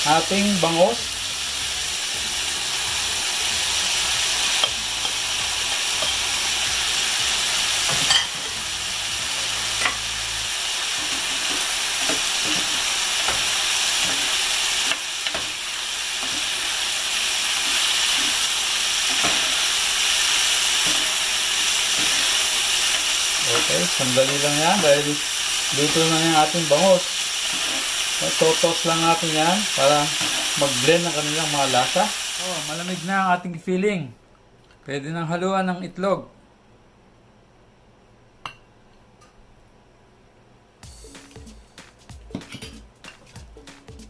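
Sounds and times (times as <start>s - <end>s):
food sizzling in a frying pan: 0.0s - 33.4s
spatula scraping pan: 27.4s - 28.2s.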